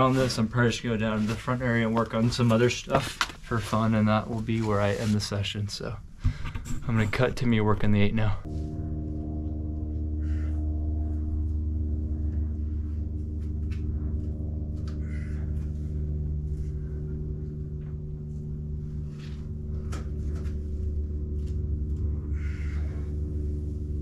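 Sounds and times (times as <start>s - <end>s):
low drone of sustained tones: 6.9s - 24.0s.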